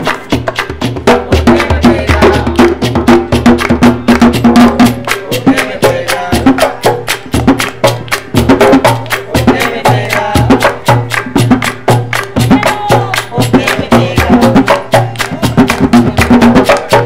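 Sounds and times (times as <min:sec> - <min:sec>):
hand drums: 0:00.0 - 0:17.0
women singing: 0:01.1 - 0:02.8, 0:05.3 - 0:06.7, 0:09.3 - 0:10.8, 0:12.4 - 0:15.2.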